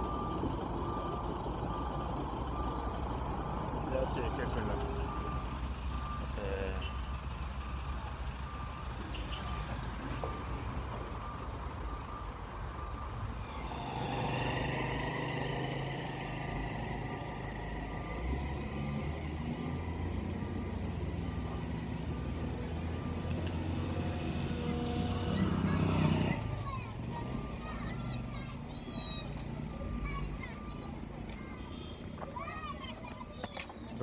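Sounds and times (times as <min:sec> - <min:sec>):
reversing alarm beeping: 0:00.0 - 0:07.1, 0:08.4 - 0:26.6
heavy truck engines rumbling: 0:00.0 - 0:34.0.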